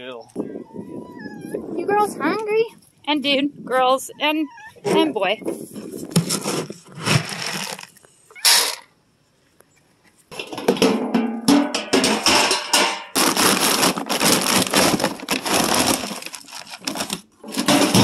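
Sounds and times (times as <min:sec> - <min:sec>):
scoop crunching into feed pellets: 0:06.2 - 0:08.8.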